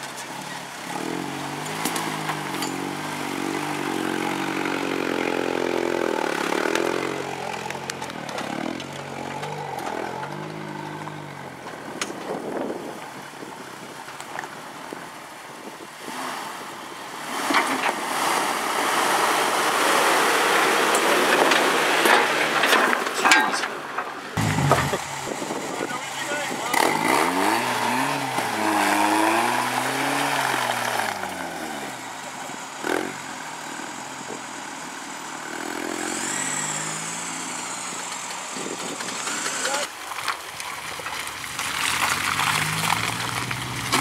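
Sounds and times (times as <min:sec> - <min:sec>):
off-road vehicle engine revving: 0:00.0 - 0:13.0, 0:24.3 - 0:39.9, 0:41.5 - 0:44.0
vehicle passing close by: 0:24.4 - 0:32.2, 0:41.8 - 0:44.0.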